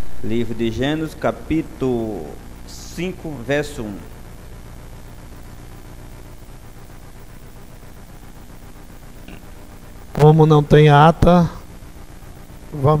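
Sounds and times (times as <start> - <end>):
even hiss: 0.0 - 4.3, 9.1 - 11.8
low hum: 0.0 - 13.0.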